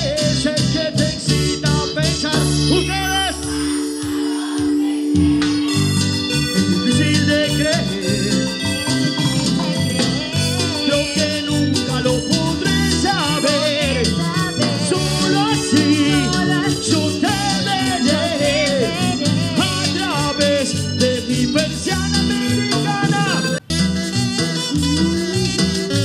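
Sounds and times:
live cumbia band: 0.0 - 26.0
woman singing: 13.8 - 19.9.

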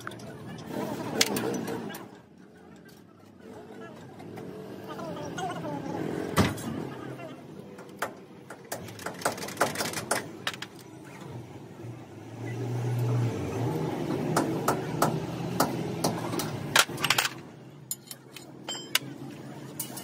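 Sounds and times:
metal tools clinking: 16.8 - 20.0.

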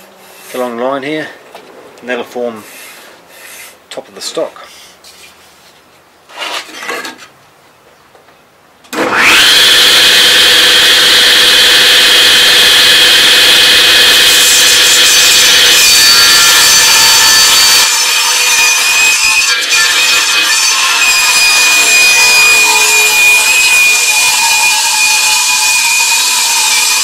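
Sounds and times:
saw blade ripping wood: 8.9 - 27.0
table saw running: 9.0 - 27.0.

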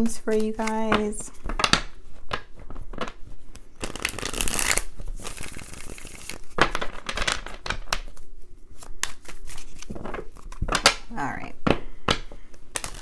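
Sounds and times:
cards riffle shuffled: 0.0 - 8.2, 8.8 - 11.0, 12.1 - 13.0
deck tapped square: 11.6 - 13.0.

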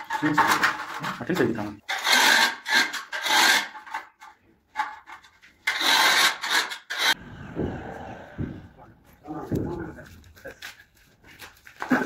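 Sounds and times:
scraping on plastered wall: 0.0 - 10.0
low rumble: 7.2 - 9.8.

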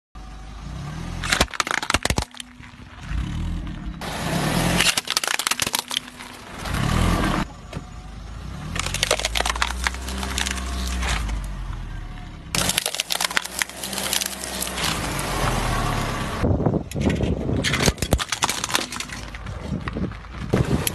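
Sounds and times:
low car rumble: 0.2 - 20.9
plastic cracking under car tyre: 1.2 - 3.0, 4.8 - 6.8, 8.7 - 11.5, 12.6 - 15.3, 17.6 - 20.9.

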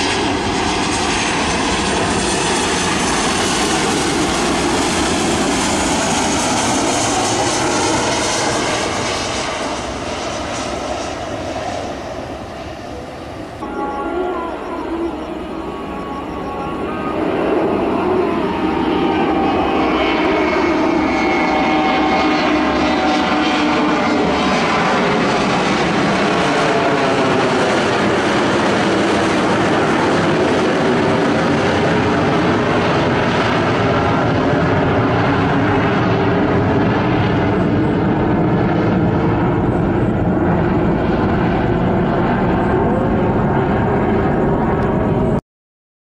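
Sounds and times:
jet engine roar: 0.0 - 45.4.

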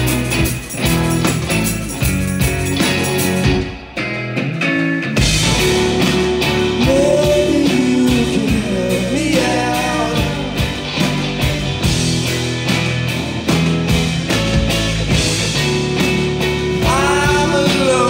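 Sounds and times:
bass guitar: 0.0 - 18.0
drum kit: 0.0 - 18.0
electric guitars: 0.0 - 18.0
person singing: 0.6 - 2.0, 6.7 - 10.8, 16.8 - 18.0.

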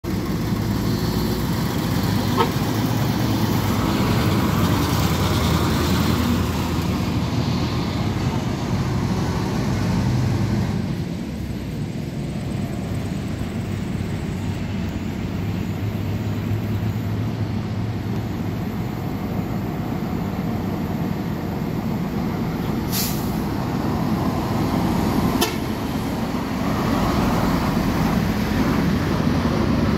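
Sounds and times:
truck diesel engine running: 0.0 - 29.9
air brake hisses: 22.8 - 23.5.

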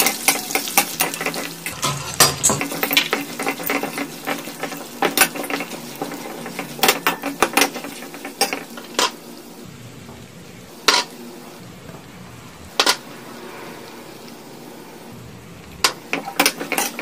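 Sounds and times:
spatula scraping a metal pan: 0.2 - 9.1.

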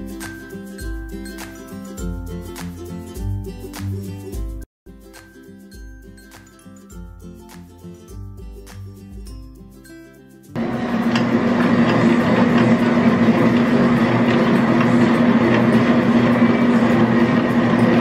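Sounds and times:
stand mixer motor hum: 10.6 - 18.0.

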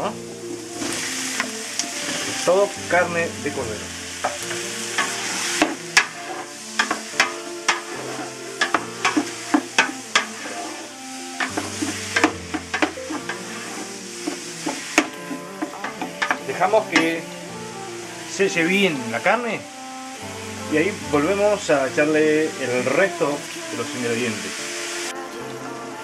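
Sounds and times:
meat sizzling in a pot: 0.0 - 25.2
wooden spoon scraping a pot: 4.2 - 17.2.

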